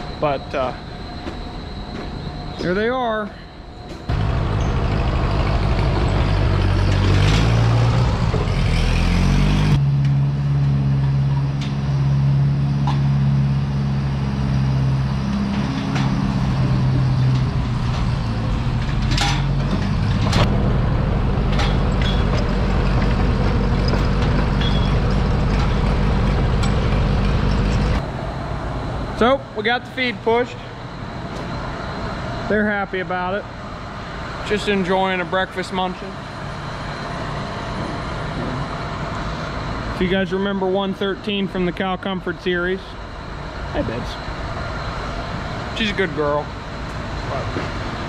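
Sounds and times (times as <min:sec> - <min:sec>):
farm machine engine running: 0:03.8 - 0:32.3.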